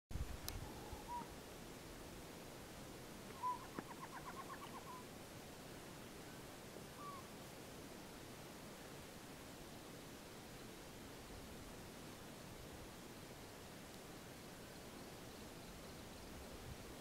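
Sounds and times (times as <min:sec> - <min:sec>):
owl whistled calls: 0:00.6 - 0:01.3, 0:03.3 - 0:05.1, 0:06.9 - 0:07.3.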